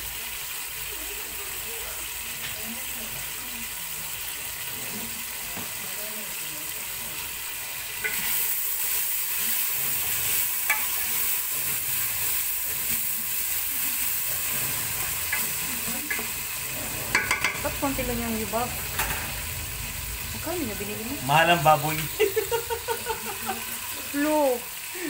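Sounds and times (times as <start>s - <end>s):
meat sizzling in oil: 0.0s - 25.0s
spatula knocking against pot: 17.1s - 17.6s.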